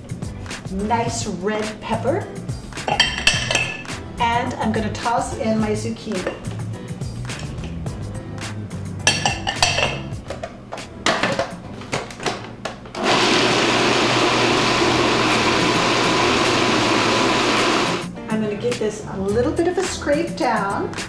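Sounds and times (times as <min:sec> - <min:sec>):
vegetables clattering into plastic bowl: 0:09.7 - 0:12.8
food processor running: 0:13.0 - 0:18.1.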